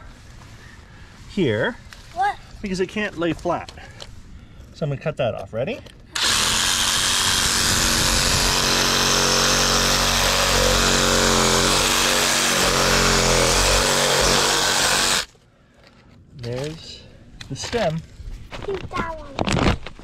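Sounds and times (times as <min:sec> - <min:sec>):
reciprocating saw cutting: 0:06.2 - 0:15.3.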